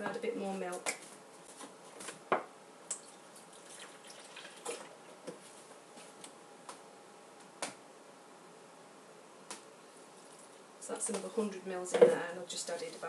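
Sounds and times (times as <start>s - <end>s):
milk pouring and dripping: 2.9s - 5.0s.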